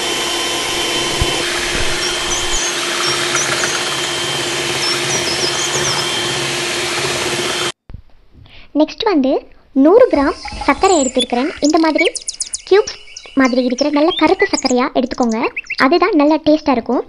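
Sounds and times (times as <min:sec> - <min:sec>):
electric hand mixer whirring: 0:00.0 - 0:07.8, 0:10.1 - 0:15.7.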